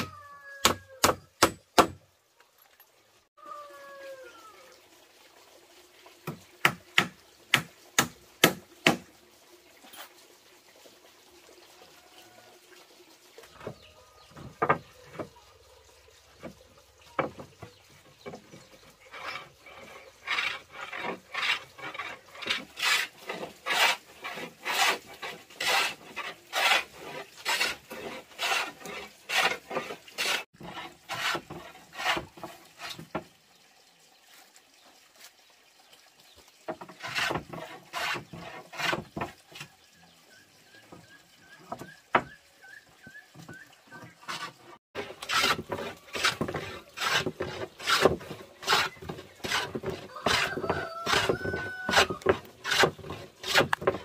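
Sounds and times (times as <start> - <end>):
hand plane rasping on wood: 19.1 - 32.4, 37.0 - 39.3, 44.3 - 54.0.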